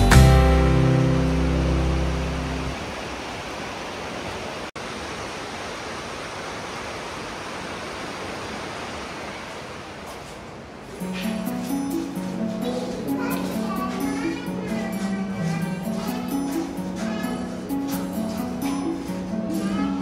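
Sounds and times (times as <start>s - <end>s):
background music: 0.0s - 2.8s, 11.0s - 20.0s
fast-flowing water rushing: 1.1s - 10.9s.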